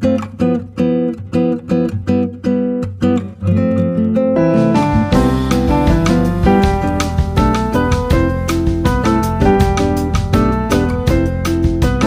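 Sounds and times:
strummed guitar: 0.0 - 12.0.

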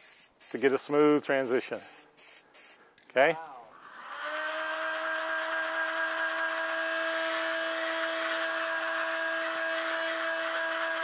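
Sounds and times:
heat gun fan whine: 3.8 - 11.0.

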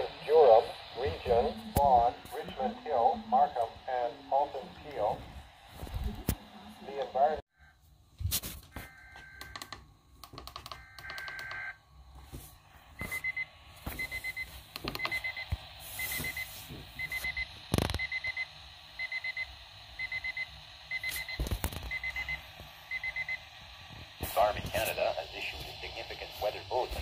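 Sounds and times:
high-pitched alarm beeps: 10.6 - 11.8, 13.0 - 23.5.

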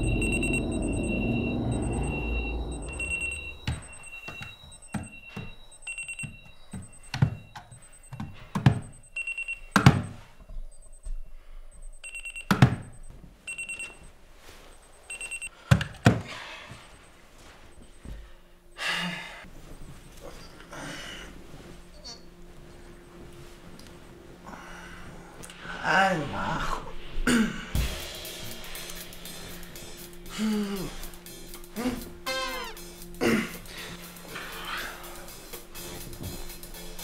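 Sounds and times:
alarm clock beeping: 0.0 - 15.6, 16.4 - 20.7.

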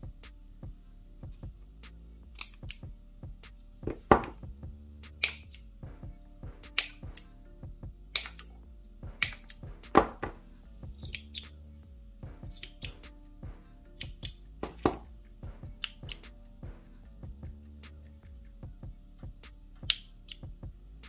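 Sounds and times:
soft background music: 0.0 - 21.0
scissors snipping: 2.4 - 2.9.

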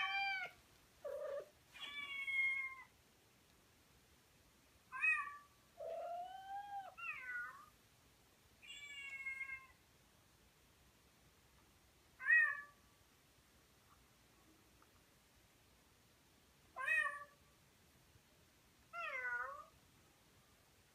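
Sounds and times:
cats meowing: 0.0 - 2.9, 5.0 - 7.7.

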